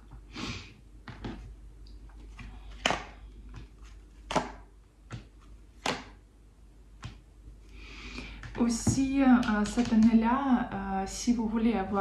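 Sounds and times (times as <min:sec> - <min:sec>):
sharp card snaps: 0:04.2 - 0:06.2.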